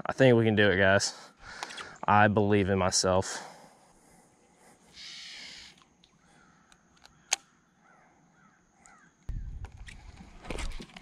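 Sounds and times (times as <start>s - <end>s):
faint short bird calls: 4.9s - 9.6s.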